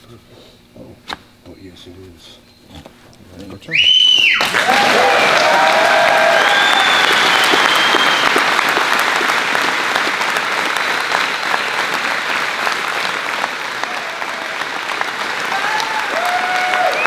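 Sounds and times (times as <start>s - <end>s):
crowd applauding: 4.1s - 17.0s.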